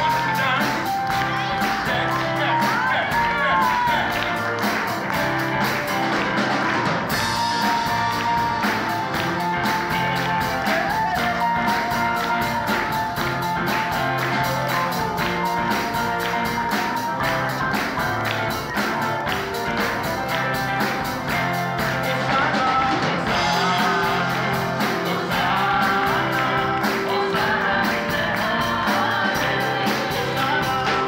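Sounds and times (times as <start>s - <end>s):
drum kit playing fast beat: 0.0s - 31.0s
held instrumental notes: 0.0s - 31.0s
man singing into a microphone: 22.0s - 31.0s.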